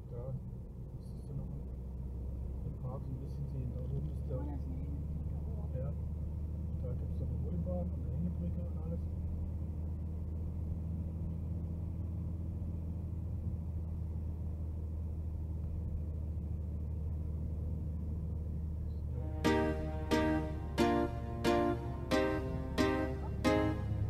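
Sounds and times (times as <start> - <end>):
car driving rumble from inside: 0.0 - 19.4
music: 19.2 - 24.0.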